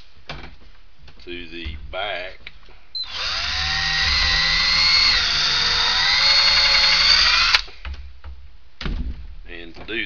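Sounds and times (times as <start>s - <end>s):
cordless drill drilling into wood: 3.0s - 7.7s.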